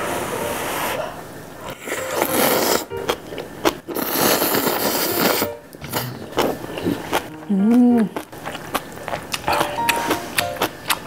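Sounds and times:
noodles being slurped: 1.8s - 2.9s, 3.9s - 7.3s.

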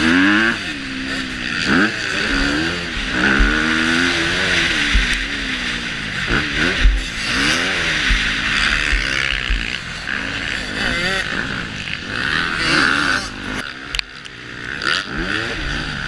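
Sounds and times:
motocross engine revving: 0.0s - 16.0s
low thumps: 3.0s - 4.0s, 6.3s - 7.2s, 7.9s - 9.8s.

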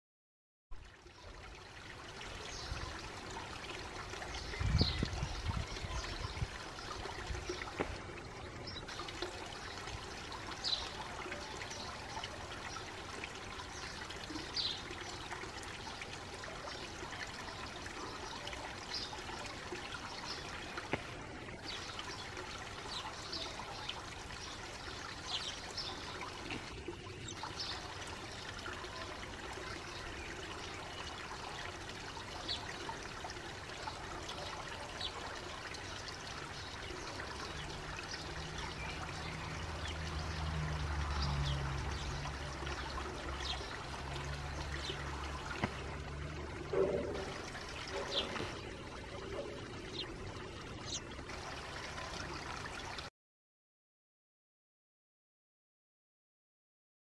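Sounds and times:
running water trickling: 0.7s - 53.1s
sparrows chirping: 4.3s - 7.8s, 21.6s - 26.4s, 46.8s - 48.7s, 50.8s - 51.1s.

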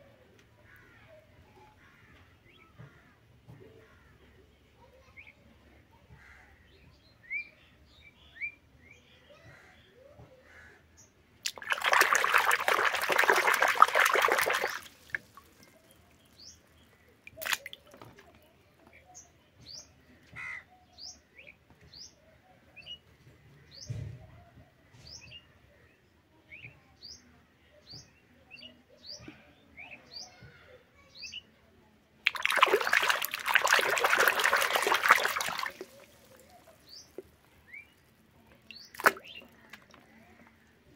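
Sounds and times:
small birds chirping: 11.0s - 22.2s, 32.3s - 40.9s
hand splashing water in tub: 11.4s - 15.7s, 17.3s - 18.3s, 32.3s - 37.3s, 38.7s - 40.0s.

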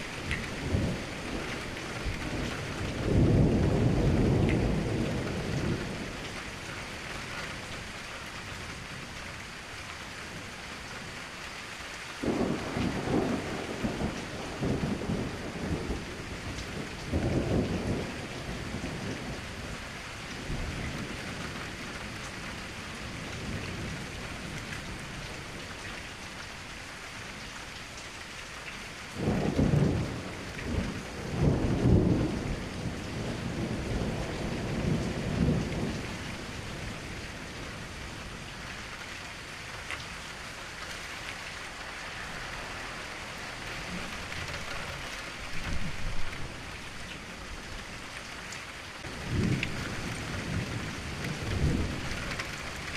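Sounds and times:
thunder rolling: 0.0s - 6.0s, 12.2s - 19.4s, 29.2s - 37.1s, 49.0s - 52.9s
steady rain falling: 0.0s - 52.9s.

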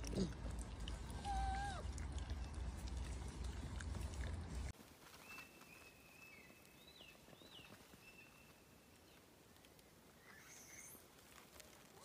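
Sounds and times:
faint high whistled calls: 5.2s - 9.2s, 10.2s - 11.1s.

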